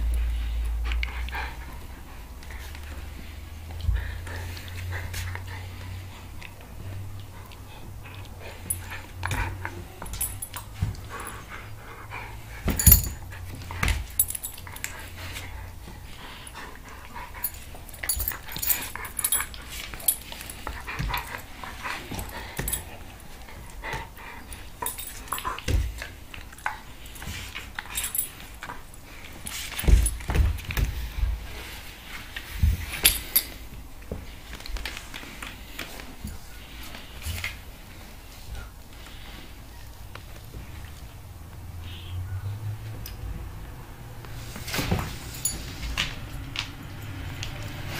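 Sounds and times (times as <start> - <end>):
dog noises: 0.0 - 29.0.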